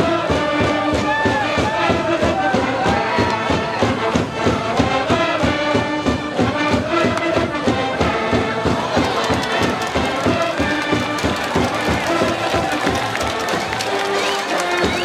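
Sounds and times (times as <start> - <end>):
crowd shouting along: 0.0 - 4.2, 7.9 - 15.0
brass band playing: 0.0 - 15.0
steady drum beat: 0.0 - 15.0.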